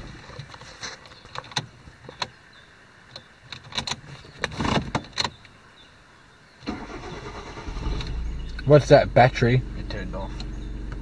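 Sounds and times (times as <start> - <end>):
car engine starting rumble: 6.6 - 11.0.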